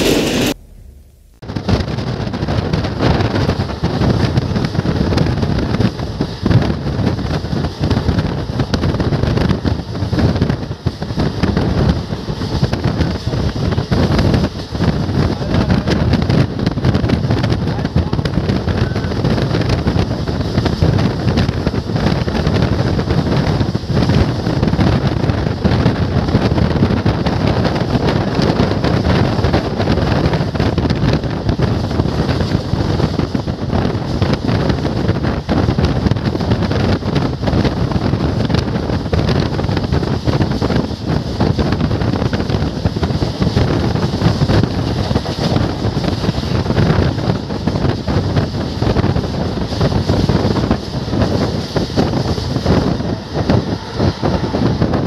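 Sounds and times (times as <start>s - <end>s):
train running on rails: 0.0s - 55.0s
wind buffeting microphone: 0.0s - 55.0s.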